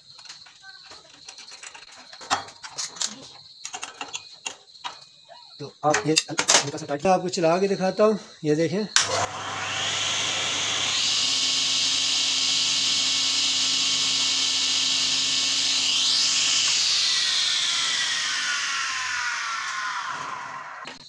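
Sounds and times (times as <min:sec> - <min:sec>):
table saw motor whine: 0:09.0 - 0:21.0.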